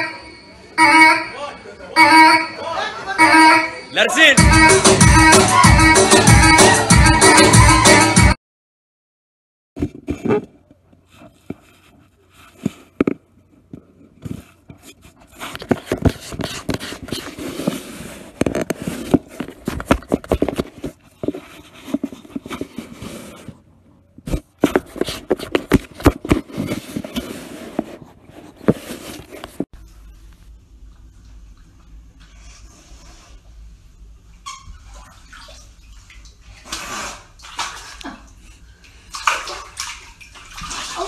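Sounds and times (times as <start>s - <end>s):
scraping and rustling on cardboard: 9.8s - 13.2s, 14.1s - 30.2s.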